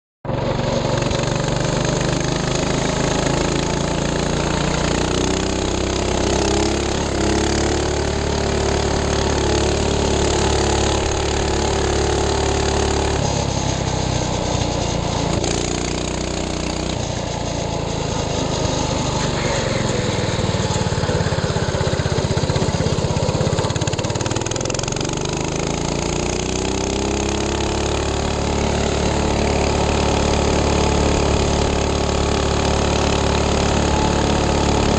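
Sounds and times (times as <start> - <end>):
minibike engine buzzing: 0.3 - 34.9.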